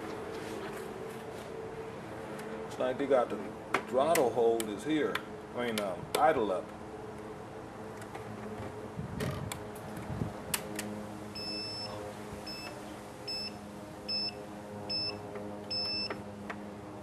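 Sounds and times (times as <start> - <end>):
two-tone electronic beeps: 11.4 - 12.7, 13.3 - 16.2.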